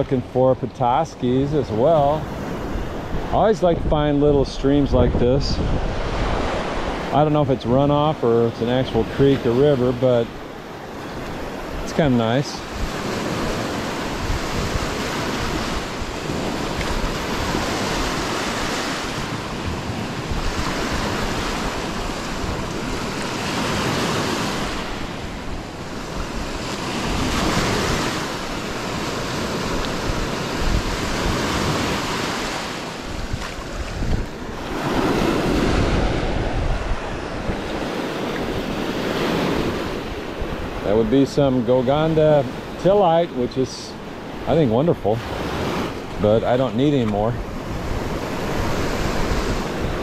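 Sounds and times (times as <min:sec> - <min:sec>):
wind buffeting microphone: 0:01.0 - 0:50.0
waves breaking on pebble shore: 0:05.6 - 0:41.0.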